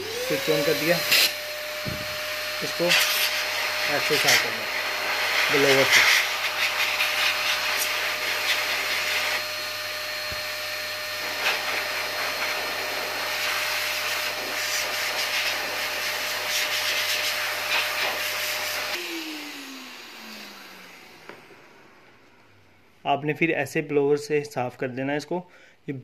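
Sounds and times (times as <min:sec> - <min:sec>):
motor winding down: 0:00.0 - 0:08.3, 0:19.0 - 0:21.4
handheld vacuum blowing air: 0:00.0 - 0:22.4.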